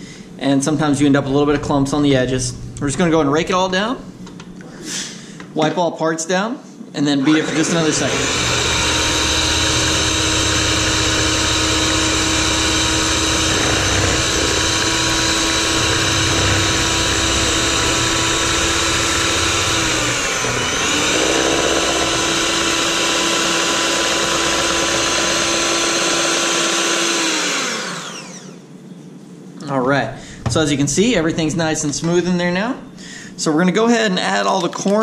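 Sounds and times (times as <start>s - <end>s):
electric hand mixer whirring: 7.2s - 28.6s.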